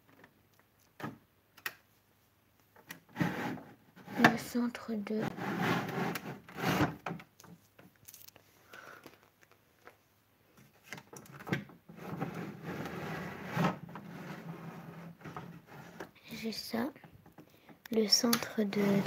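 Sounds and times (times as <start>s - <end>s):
rustling and rubbing of objects: 1.9s - 19.0s.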